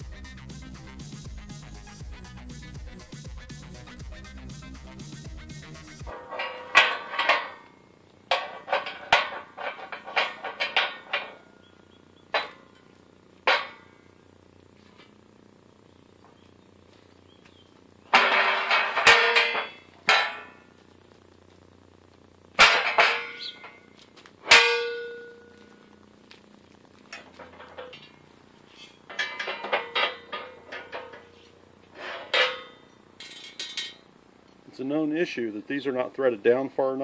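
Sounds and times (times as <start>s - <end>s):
metal clattering: 6.0s - 11.6s, 12.3s - 14.0s, 18.1s - 20.7s, 22.5s - 25.8s, 27.1s - 34.0s
steel parts clinking: 6.1s - 11.6s, 18.1s - 20.7s, 22.6s - 25.8s, 27.1s - 34.0s
ringing metal clangs: 6.1s - 14.1s, 18.1s - 20.7s, 22.6s - 25.8s, 27.1s - 31.4s, 32.0s - 34.0s.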